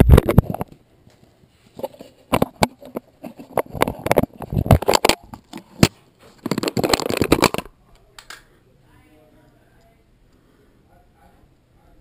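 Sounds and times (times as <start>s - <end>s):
scraping on camera housing: 1.6s - 7.7s.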